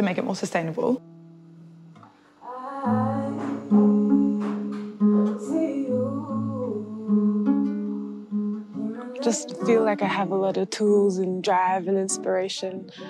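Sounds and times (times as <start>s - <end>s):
acoustic guitar plucked: 0.0s - 13.0s
person singing: 2.4s - 13.0s.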